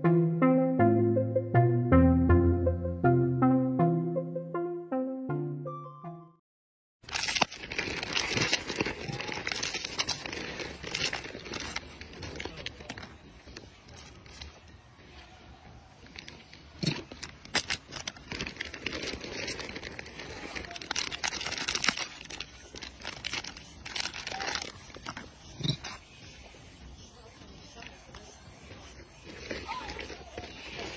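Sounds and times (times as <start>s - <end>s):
plastic wrappers crinkling and tearing: 7.0s - 14.7s, 16.0s - 25.8s.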